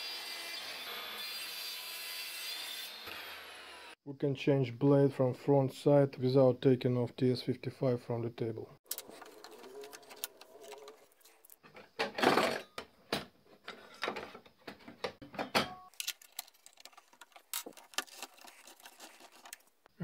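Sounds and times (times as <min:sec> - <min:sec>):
metal scraping: 0:08.8 - 0:11.7
saw and blade clicking and rattling: 0:15.9 - 0:19.6.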